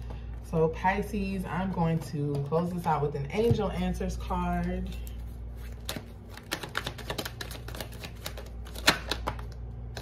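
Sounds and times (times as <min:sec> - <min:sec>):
cards being shuffled: 0:03.8 - 0:10.0.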